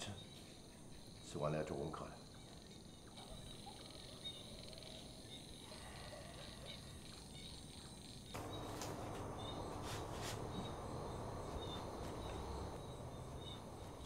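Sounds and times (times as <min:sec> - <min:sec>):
crickets chirping: 0:00.0 - 0:14.0
steady room noise hiss: 0:08.1 - 0:14.0.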